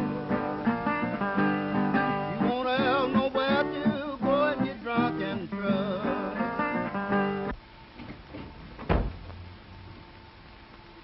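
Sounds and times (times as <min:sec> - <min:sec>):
blues acoustic guitar song: 0:00.0 - 0:07.5
soundtrack hiss: 0:00.0 - 0:11.0.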